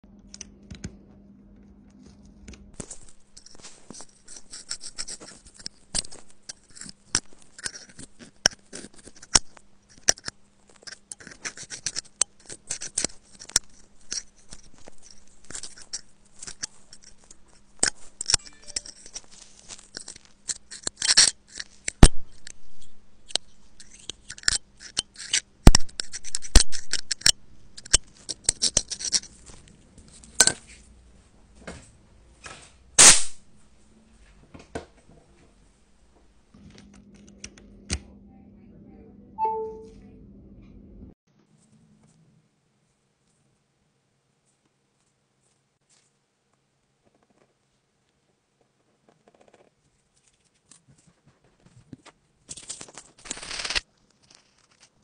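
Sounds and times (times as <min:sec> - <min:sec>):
faint low hum: 0:00.0 - 0:20.9, 0:21.6 - 0:52.5
metal pick scratching and clicking: 0:02.8 - 0:29.6.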